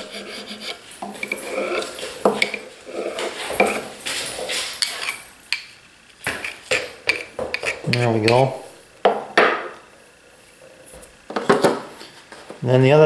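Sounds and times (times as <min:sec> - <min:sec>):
chisel scraping on metal: 0:00.0 - 0:03.8, 0:06.3 - 0:08.6.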